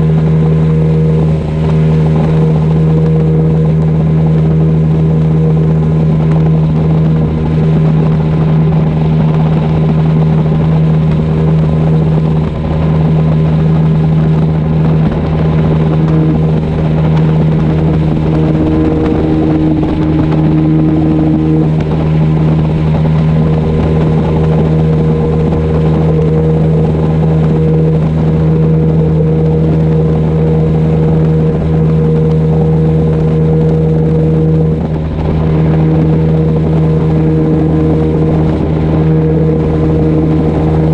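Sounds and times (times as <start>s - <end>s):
outboard motor humming: 0.0s - 40.9s
rush of wind and water: 0.0s - 40.9s.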